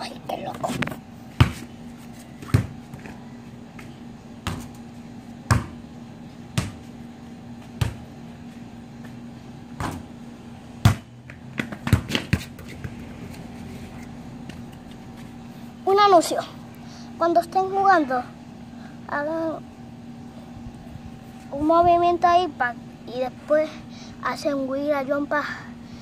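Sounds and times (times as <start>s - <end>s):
basketball bouncing: 1.4s - 1.7s, 2.4s - 3.1s, 4.4s - 4.8s, 5.5s - 5.8s, 6.5s - 6.9s, 7.8s - 8.1s, 9.8s - 10.1s, 10.8s - 13.0s.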